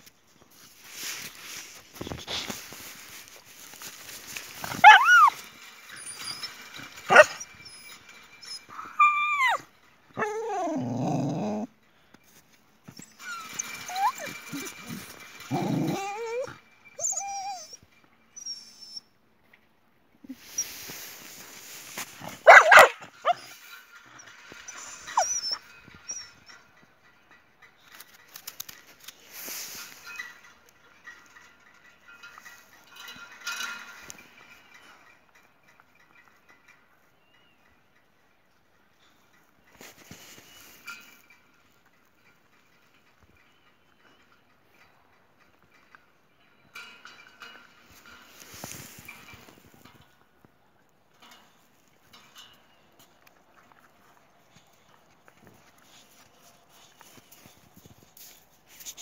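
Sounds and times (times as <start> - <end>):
dog whining yelp: 4.6 - 11.7, 12.9 - 19.1, 22.4 - 26.4
dog barking: 4.8 - 5.3, 22.4 - 23.4.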